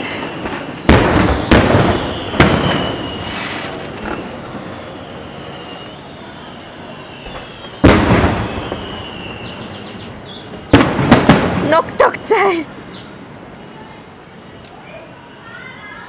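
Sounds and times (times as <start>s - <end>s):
firework shells bursting: 0.0s - 9.8s, 10.5s - 11.7s.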